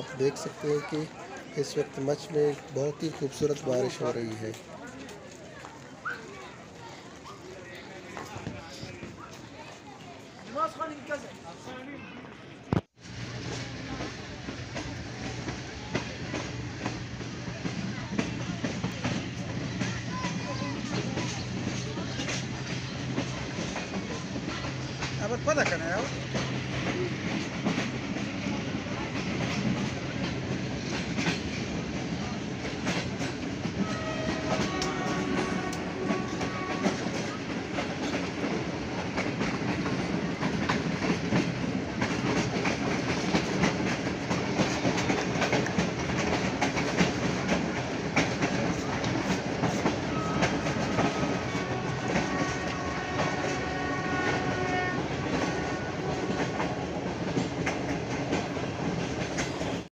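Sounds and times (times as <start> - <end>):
train rumble: 0.0 - 11.3, 12.6 - 59.9
wheels clicking over rail joints: 29.0 - 59.9.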